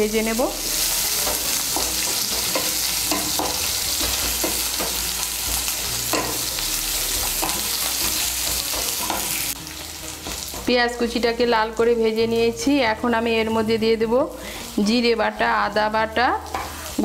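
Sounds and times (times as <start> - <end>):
onions sizzling in hot oil: 0.0 - 17.0
spatula scraping and knocking pan: 1.0 - 6.5, 7.2 - 9.5.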